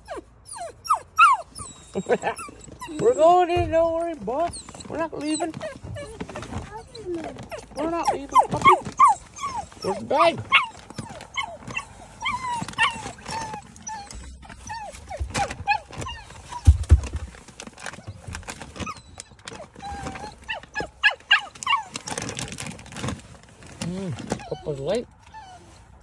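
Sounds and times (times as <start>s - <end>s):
puppy whining and whimpering: 0.0s - 26.0s
dull low thump: 2.8s - 7.8s, 12.6s - 17.5s.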